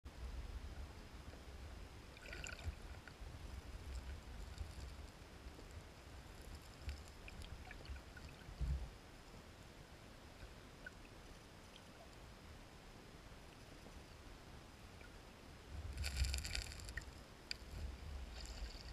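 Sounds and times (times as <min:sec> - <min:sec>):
gravel stones clicking: 0:16.0 - 0:18.9.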